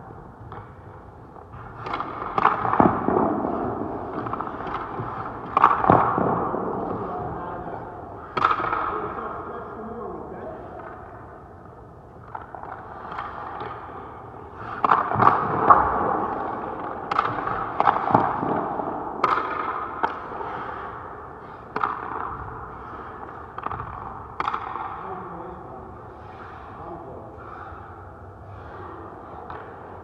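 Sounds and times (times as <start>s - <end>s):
skates scraping ice: 0.3s - 9.1s, 12.2s - 24.7s, 26.1s - 27.8s.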